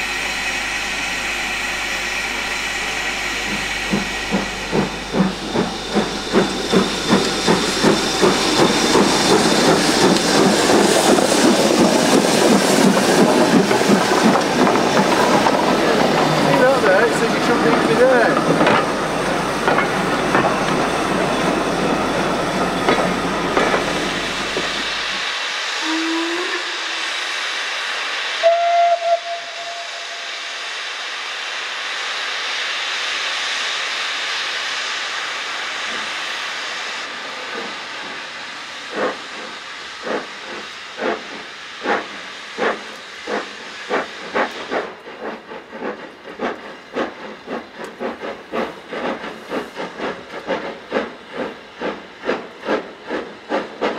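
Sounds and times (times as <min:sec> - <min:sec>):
train coaches rumbling over rails: 0:00.0 - 0:30.8, 0:35.1 - 0:53.9
steam hissing: 0:00.0 - 0:53.9
locomotive exhaust beats: 0:02.3 - 0:25.2
steam locomotive whistle: 0:25.8 - 0:27.2, 0:28.4 - 0:30.6.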